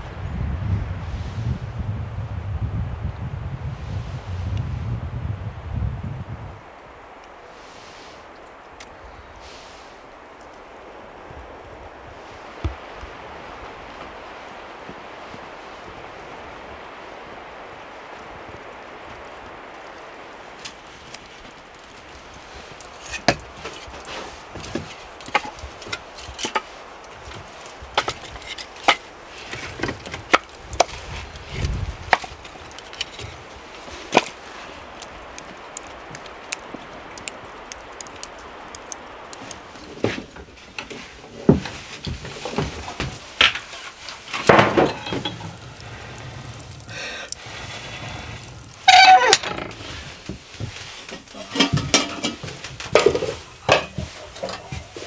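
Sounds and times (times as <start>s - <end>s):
cookware clattering: 51.3s - 52.4s.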